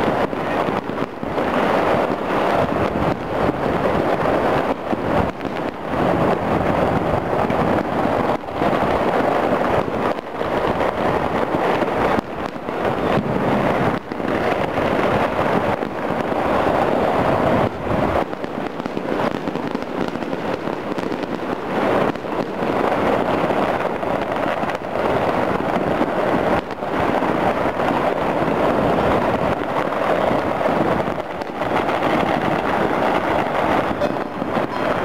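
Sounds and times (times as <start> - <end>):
distant fireworks popping and crackling: 0.0 - 35.0.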